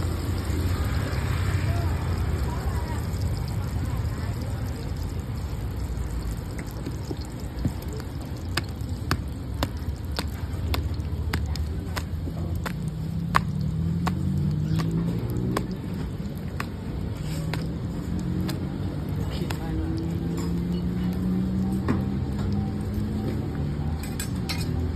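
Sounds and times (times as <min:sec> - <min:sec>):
low traffic rumble: 0:00.0 - 0:24.9
dough patted on steel table: 0:07.7 - 0:18.7.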